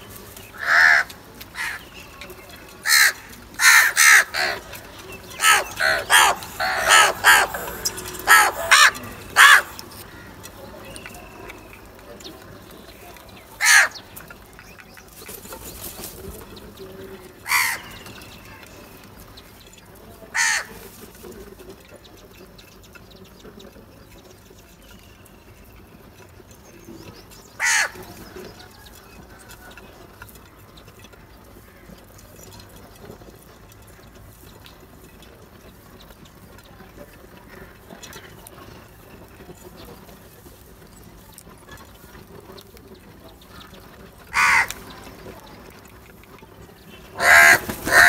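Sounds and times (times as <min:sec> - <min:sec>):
faint outdoor background: 0:00.0 - 0:48.0
crows cawing: 0:00.5 - 0:01.9, 0:02.8 - 0:10.5, 0:13.6 - 0:14.1, 0:17.4 - 0:18.1, 0:20.3 - 0:20.8, 0:27.6 - 0:28.1, 0:44.3 - 0:44.9, 0:47.1 - 0:48.0.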